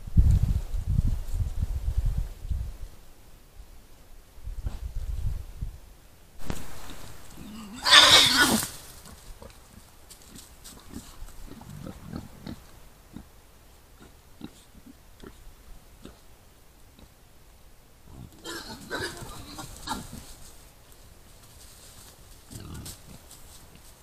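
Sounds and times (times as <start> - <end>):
rustling in leaf litter: 6.4 - 11.4, 18.8 - 24.0
boar grunting: 6.8 - 8.8, 18.1 - 20.3, 22.5 - 23.2
wild boar harsh call: 6.8 - 8.8, 18.1 - 20.3.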